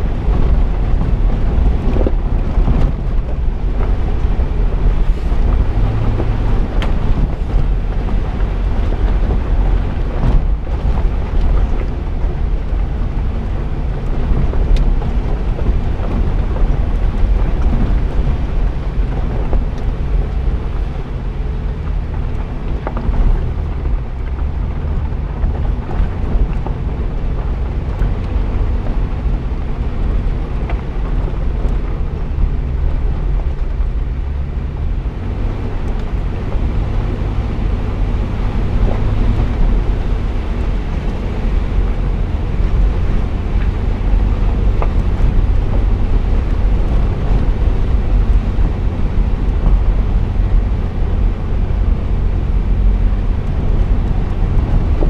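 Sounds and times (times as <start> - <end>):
engine running at low speed: 0.0 - 55.0
small clicks from road: 0.0 - 55.0
wind buffeting microphone: 0.0 - 55.0.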